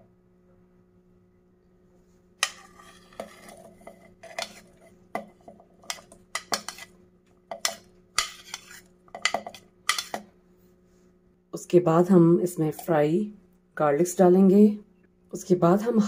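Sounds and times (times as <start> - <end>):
metal spoon scraping a plate: 2.4 - 10.3.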